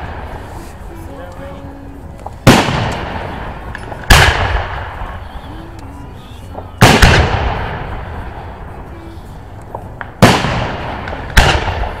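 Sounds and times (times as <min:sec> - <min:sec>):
firework shells bursting with echo: 0:06.5 - 0:08.2.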